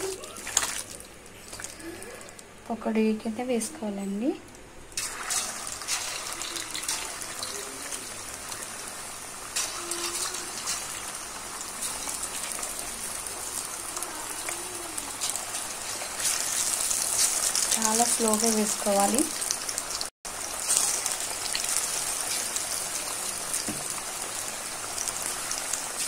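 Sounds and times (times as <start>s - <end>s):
battered chicken deep-frying in oil: 4.9s - 26.0s.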